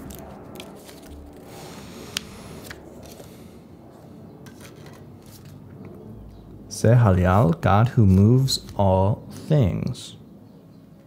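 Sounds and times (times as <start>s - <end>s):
paper pages rustling: 0.0s - 3.4s, 4.4s - 5.6s.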